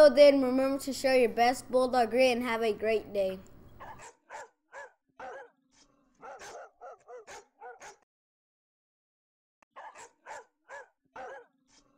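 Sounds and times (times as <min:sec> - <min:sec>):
dog yapping: 0:03.8 - 0:08.0, 0:09.8 - 0:11.9.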